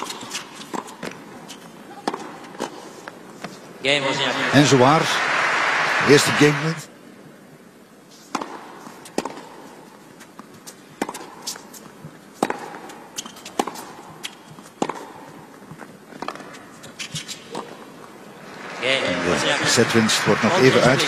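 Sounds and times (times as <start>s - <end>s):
tennis rackets striking ball: 0.0s - 1.2s, 2.0s - 2.8s, 8.3s - 9.7s, 10.4s - 17.8s
tennis ball bouncing: 0.0s - 2.8s, 8.3s - 17.8s.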